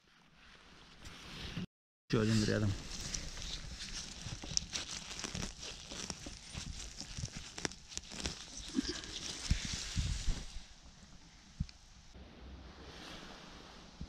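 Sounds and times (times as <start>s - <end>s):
hand rustling through grass: 2.2s - 10.9s
small snaps and crackles: 2.9s - 9.9s.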